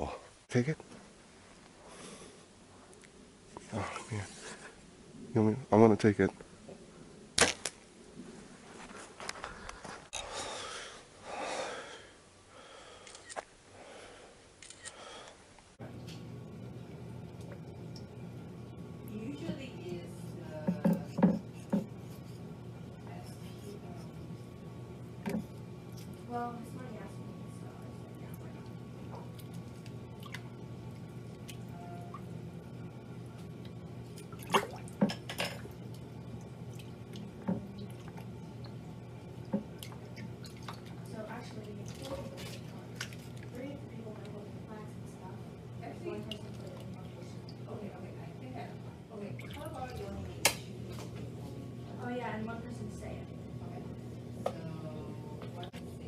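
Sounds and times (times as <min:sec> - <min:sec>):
steady low hum: 0:00.0 - 0:56.0
close breathing: 0:01.8 - 0:02.5, 0:09.5 - 0:15.5
rustling of brush and clothing: 0:08.2 - 0:10.2
water splashing in a plastic bowl: 0:34.1 - 0:35.1, 0:49.3 - 0:50.1.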